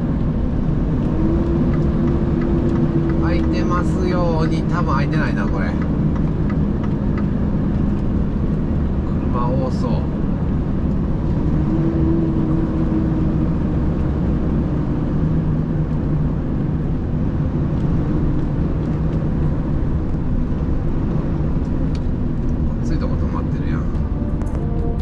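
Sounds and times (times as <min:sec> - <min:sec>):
vehicle engine drone: 0:00.0 - 0:25.0.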